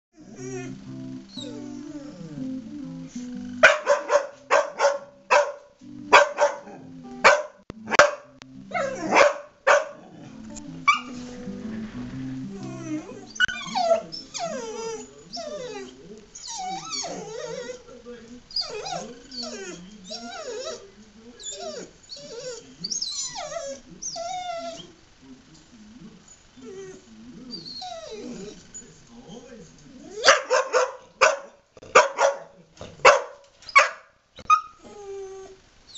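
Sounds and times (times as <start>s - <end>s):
dog whining: 0.2s - 2.5s, 8.7s - 9.4s, 10.0s - 11.5s, 12.4s - 17.9s, 18.5s - 25.0s, 26.3s - 30.9s, 33.1s - 35.9s
music: 0.2s - 15.9s
dog barking: 3.6s - 10.2s, 10.9s - 11.2s, 30.2s - 34.8s.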